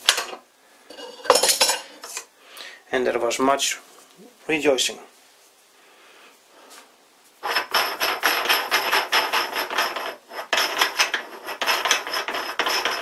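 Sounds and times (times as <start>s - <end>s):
steel drill chuck grating and rattling: 7.4s - 13.0s.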